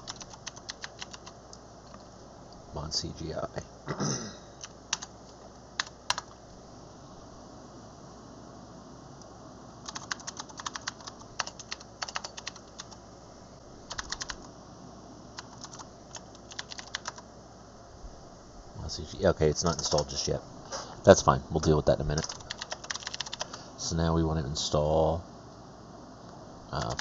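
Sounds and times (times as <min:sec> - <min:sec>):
typing on computer keyboard: 0:00.0 - 0:01.4, 0:04.9 - 0:05.1, 0:05.8 - 0:06.3, 0:09.8 - 0:13.0, 0:13.9 - 0:14.5, 0:15.4 - 0:17.2, 0:22.2 - 0:23.6, 0:26.8 - 0:27.0.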